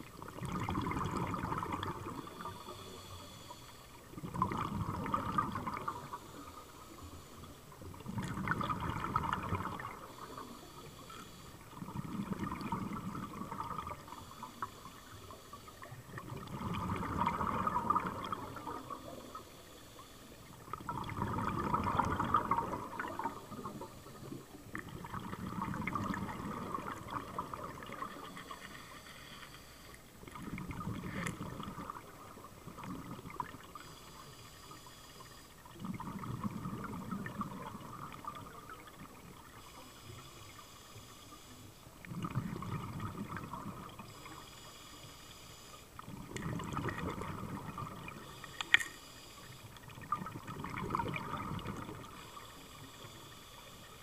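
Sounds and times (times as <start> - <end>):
diver exhaling bubbles: 0.2 - 2.6, 4.1 - 6.2, 7.8 - 10.5, 11.7 - 14.2, 16.0 - 19.4, 20.7 - 28.6, 30.3 - 33.8, 35.7 - 39.2, 42.1 - 44.2, 46.1 - 48.3, 49.9 - 52.2.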